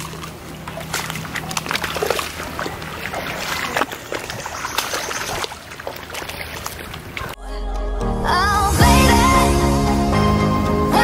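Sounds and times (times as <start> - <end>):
feet splashing through water: 0.0 - 7.4
stream running: 0.0 - 7.4.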